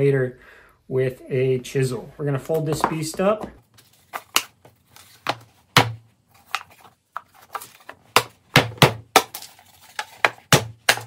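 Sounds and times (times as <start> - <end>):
wooden box sides clacking: 5.2 - 11.0.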